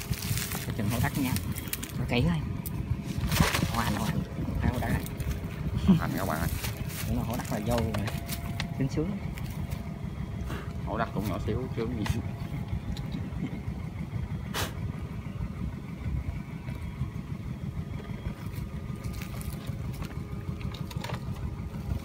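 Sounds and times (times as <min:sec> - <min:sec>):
wind buffeting microphone: 0:00.0 - 0:08.8.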